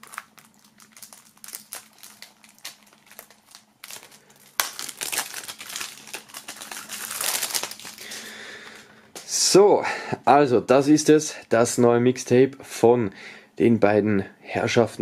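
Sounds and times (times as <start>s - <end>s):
plastic film crackles and clicks: 0.0s - 8.8s
plastic film crinkling: 0.0s - 8.8s.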